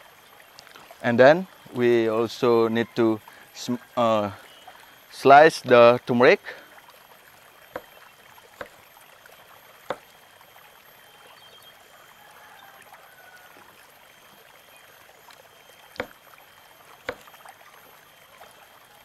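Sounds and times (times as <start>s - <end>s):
steady hiss: 0.0s - 6.8s.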